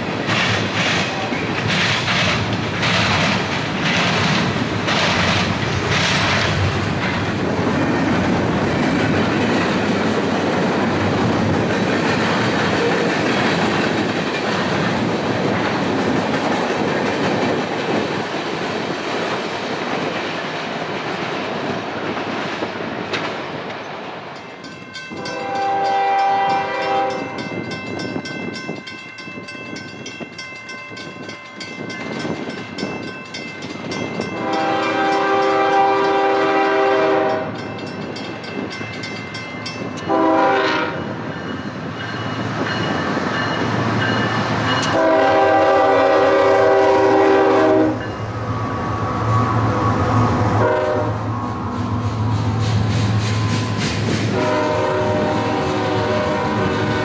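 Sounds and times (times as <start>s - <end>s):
rail cars rumbling past: 0.0s - 57.0s
locomotive air horn blasts: 25.2s - 27.4s, 34.4s - 37.6s, 40.1s - 41.0s, 44.9s - 48.1s, 50.4s - 51.3s, 54.3s - 57.0s.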